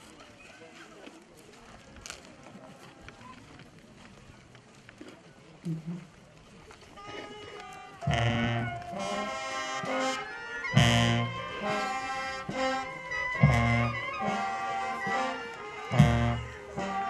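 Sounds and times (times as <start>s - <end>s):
brass band playing a march: 7.0s - 17.0s
loud low drum beat: 8.1s - 9.0s, 10.8s - 11.7s, 13.4s - 14.3s, 15.9s - 17.0s.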